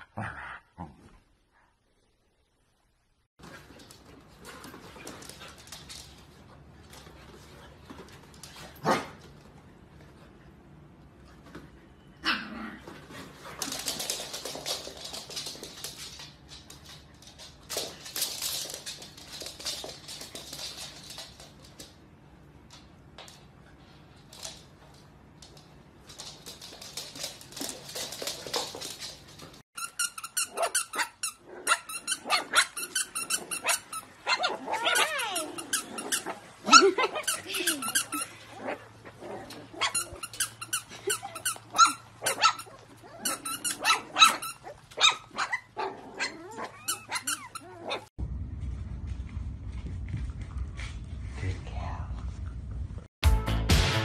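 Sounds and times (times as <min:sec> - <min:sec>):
dogs scuffling: 0:03.4 - 0:10.4, 0:12.8 - 0:30.7
squeaky toy squeaking: 0:29.8 - 0:33.8
puppies yipping and whining: 0:39.8 - 0:48.1.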